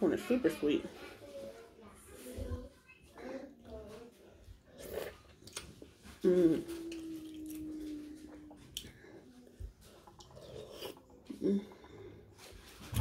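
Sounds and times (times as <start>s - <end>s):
person humming: 6.2s - 8.7s.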